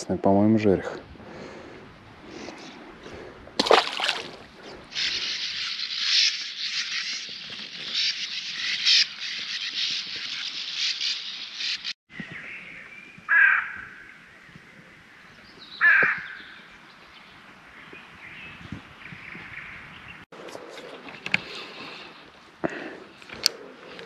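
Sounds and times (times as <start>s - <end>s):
crow-like bird calling: 13.3s - 14.1s, 15.8s - 16.5s.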